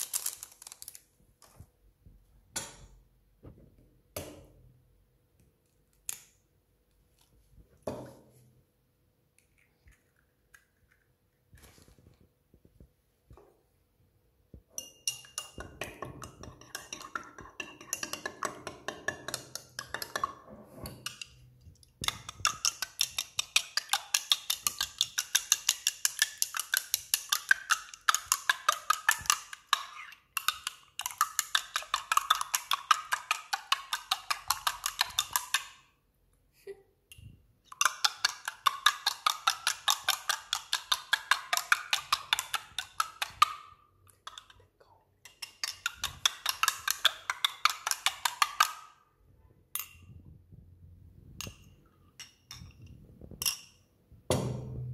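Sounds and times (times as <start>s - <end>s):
utensil whisking in ceramic mug: 14.8s - 35.8s, 37.2s - 49.0s.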